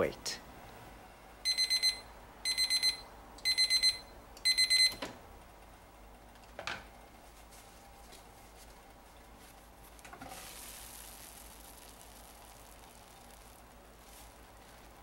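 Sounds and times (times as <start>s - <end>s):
timer alarm high-pitched beeps: 1.4s - 5.0s.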